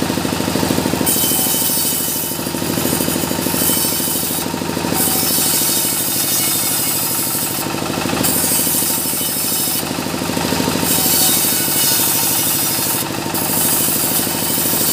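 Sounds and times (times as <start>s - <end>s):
saw machine running with pulsing beat: 0.0s - 14.9s.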